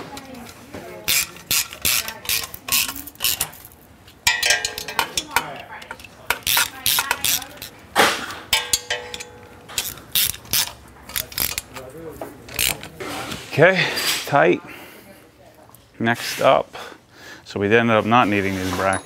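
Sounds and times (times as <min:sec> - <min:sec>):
wrench clinking on metal: 0:01.1 - 0:07.7, 0:08.5 - 0:11.9, 0:18.8 - 0:19.0
hand ratchet clicking: 0:01.1 - 0:07.8, 0:08.5 - 0:11.9, 0:12.5 - 0:12.9.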